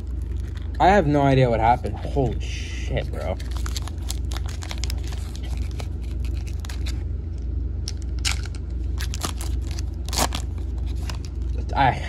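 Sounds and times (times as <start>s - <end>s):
foil wrapper crinkling and tearing: 0.0s - 1.1s, 3.0s - 7.0s, 8.1s - 11.6s
steady low hum: 0.0s - 12.0s.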